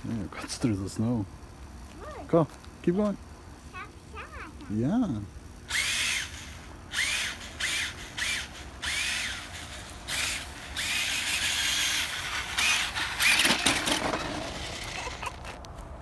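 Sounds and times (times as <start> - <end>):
toy truck electric motor whining: 5.6 - 15.6.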